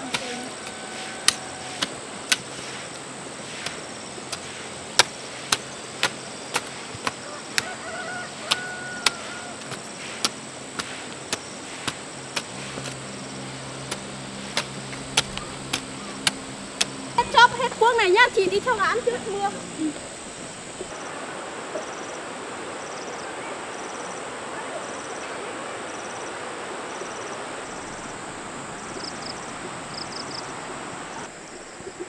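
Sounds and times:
sharp chopping strikes: 0:00.0 - 0:02.9, 0:03.6 - 0:07.7, 0:08.4 - 0:13.0, 0:13.8 - 0:17.0
low hum: 0:00.0 - 0:22.6, 0:26.8 - 0:31.8
heavy rain hiss: 0:00.0 - 0:32.0.

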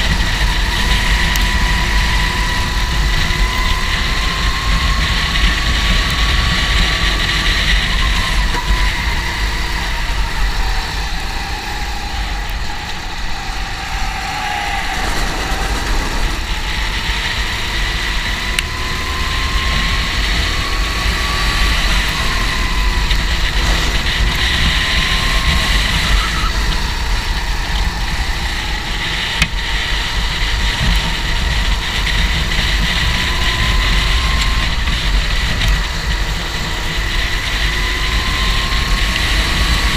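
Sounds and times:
kart engine whining: 0:00.0 - 0:39.9
steady low rumble: 0:00.0 - 0:39.9.

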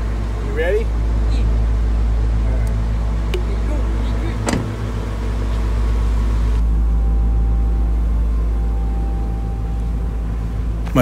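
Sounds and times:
truck engine rumbling: 0:00.0 - 0:11.0
truck door shutting: 0:04.3 - 0:06.6.

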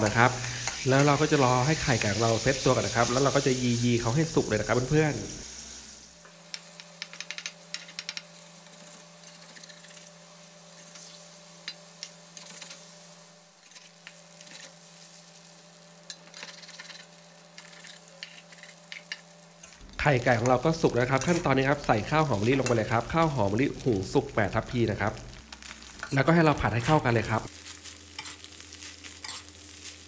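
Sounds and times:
eggs sizzling in hot oil: 0:00.0 - 0:30.0
metal spatula scraping a wok: 0:13.6 - 0:14.8, 0:16.1 - 0:18.8, 0:28.2 - 0:30.0.

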